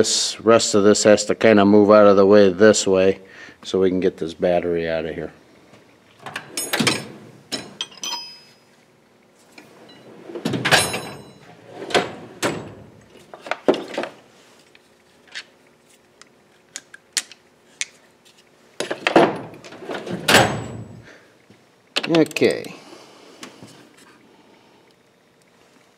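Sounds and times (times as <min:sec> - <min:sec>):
metal drawers sliding: 0:06.2 - 0:08.0, 0:09.6 - 0:14.2, 0:18.8 - 0:20.9
drawers closing clatter: 0:06.2 - 0:08.2, 0:09.6 - 0:14.2, 0:18.8 - 0:21.0
metal tools clinking: 0:06.4 - 0:08.7, 0:10.7 - 0:11.5.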